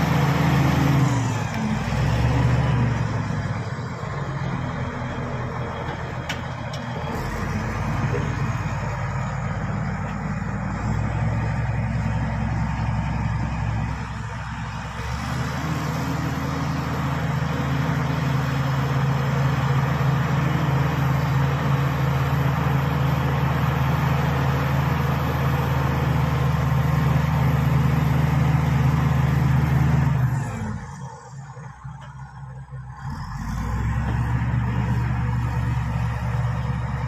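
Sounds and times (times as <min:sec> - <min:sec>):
bulldozer diesel engine under load: 0:00.0 - 0:37.0.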